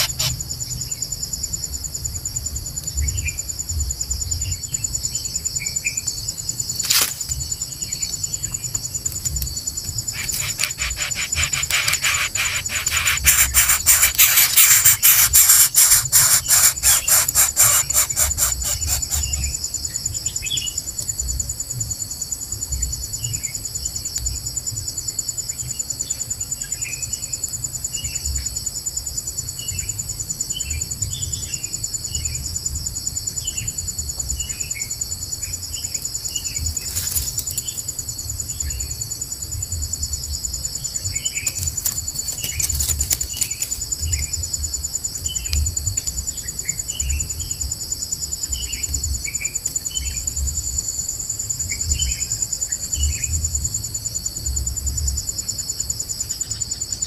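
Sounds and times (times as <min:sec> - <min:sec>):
insect chorus whine: 0:00.0 - 0:57.0
sharp clicks: 0:10.1 - 0:19.5.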